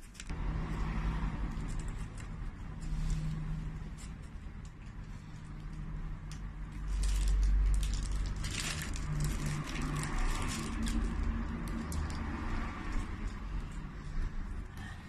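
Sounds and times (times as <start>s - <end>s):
plastic packet crinkling: 6.7s - 12.2s.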